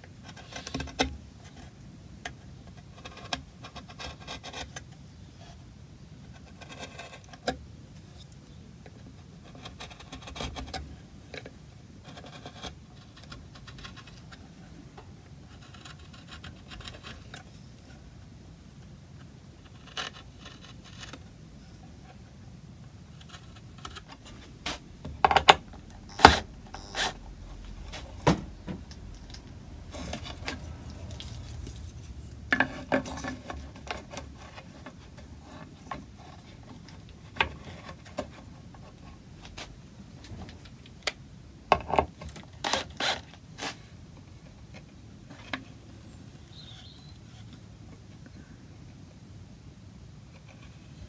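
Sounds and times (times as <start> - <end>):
chisel scraping wood: 6.3 - 7.5, 9.4 - 10.9, 12.0 - 14.4, 15.5 - 17.5, 19.6 - 21.2, 23.2 - 29.2, 29.8 - 39.1, 42.6 - 43.8.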